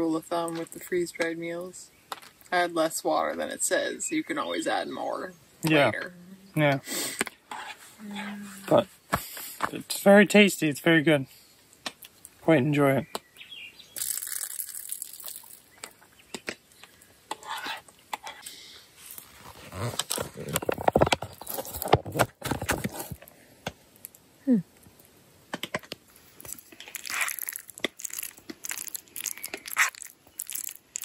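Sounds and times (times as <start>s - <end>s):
foil pouch crinkling and tearing: 14.0s - 15.6s, 19.1s - 20.8s, 26.4s - 31.0s.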